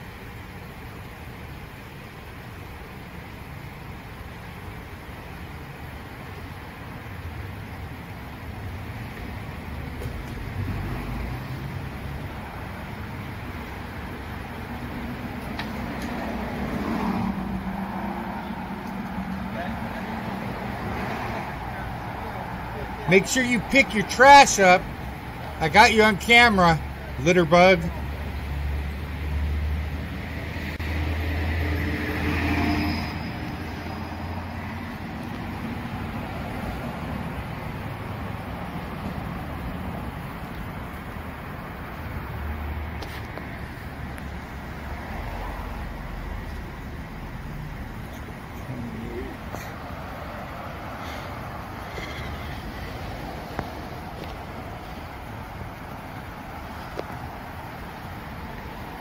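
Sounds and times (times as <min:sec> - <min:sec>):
cars driving on road: 0:00.0 - 0:59.0
vehicle passing by: 0:09.7 - 0:12.9, 0:14.6 - 0:40.3, 0:42.1 - 0:57.6.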